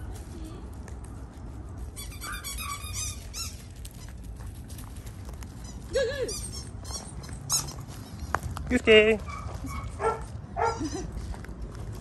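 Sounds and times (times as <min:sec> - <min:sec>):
dog yelping whines: 0:02.2 - 0:03.6.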